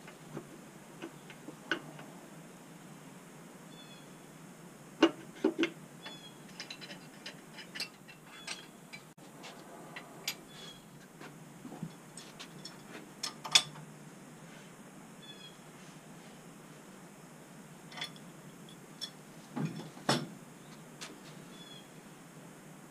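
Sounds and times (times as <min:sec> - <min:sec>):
hand tools clanking on metal: 0:05.0 - 0:09.1.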